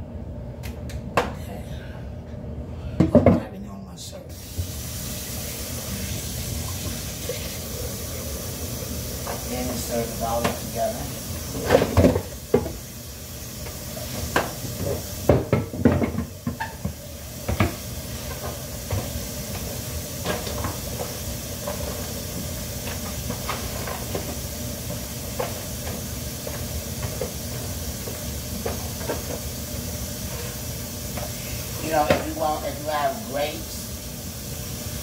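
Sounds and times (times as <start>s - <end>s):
faucet running into a bowl: 4.4s - 12.8s
kitchenware knocks and clatters: 15.3s - 16.9s.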